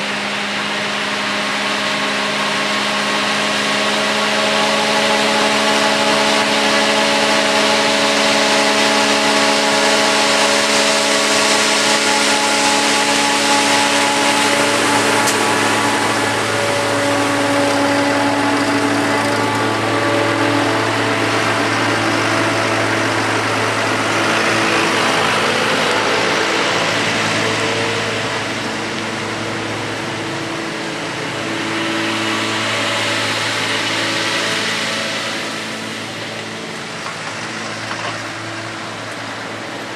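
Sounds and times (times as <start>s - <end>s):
tractor engine under load: 0.0s - 39.9s
forage harvester chopping: 5.7s - 26.1s.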